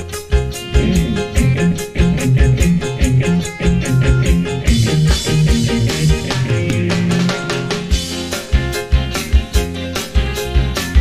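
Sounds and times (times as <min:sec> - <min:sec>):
guitar: 0:00.0 - 0:11.0
bass line: 0:00.3 - 0:11.0
drum hits: 0:00.7 - 0:03.2.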